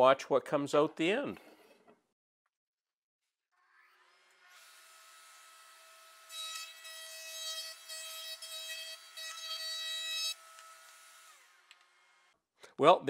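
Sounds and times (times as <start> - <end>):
router whining and cutting wood: 3.6 - 12.4.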